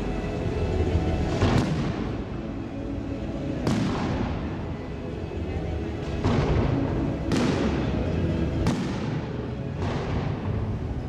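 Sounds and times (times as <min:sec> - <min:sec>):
fireworks booming: 0:01.4 - 0:02.2, 0:03.6 - 0:04.4, 0:06.2 - 0:07.9, 0:08.6 - 0:10.6.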